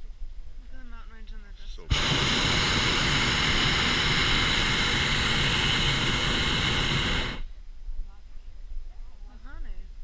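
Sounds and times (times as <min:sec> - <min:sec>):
propane burner blast: 0:01.8 - 0:07.5.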